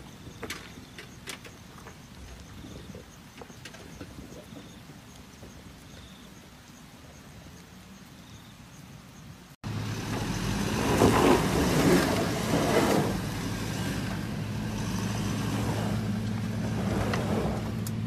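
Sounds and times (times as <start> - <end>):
suv engine humming: 9.6 - 18.0.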